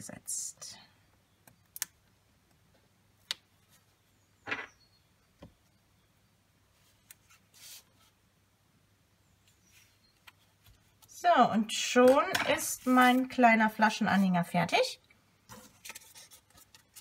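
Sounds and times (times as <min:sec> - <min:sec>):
paper rustling: 0:15.5 - 0:17.0.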